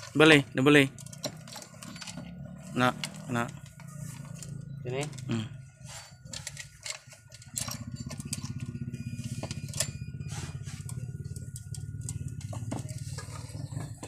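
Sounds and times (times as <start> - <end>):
saw chain links clicking: 0.0 - 5.3, 6.0 - 10.0
engine pulsing hum: 0.0 - 14.0.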